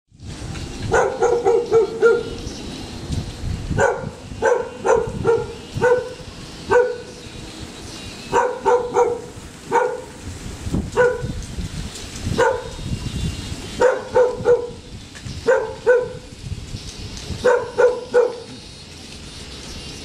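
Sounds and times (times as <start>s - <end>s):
dog barking: 0.9s - 2.3s, 3.8s - 7.1s, 8.3s - 10.2s, 10.9s - 11.4s, 12.4s - 12.8s, 13.8s - 14.8s, 15.4s - 16.3s, 17.4s - 18.5s.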